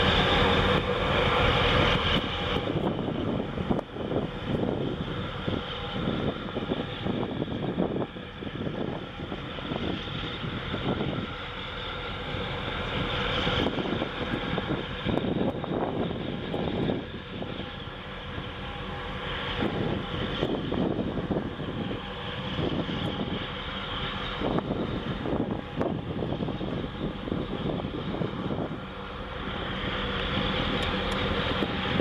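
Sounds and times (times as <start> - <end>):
ship machinery low drone: 0.0 - 32.0
wind on microphone: 0.0 - 32.0.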